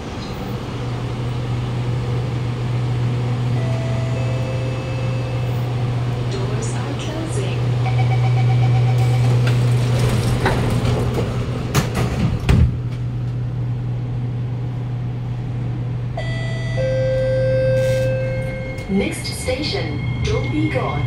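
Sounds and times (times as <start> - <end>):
train equipment humming: 0.0 - 21.0
electronic warning tone: 3.6 - 5.7, 7.8 - 9.4, 16.2 - 21.0.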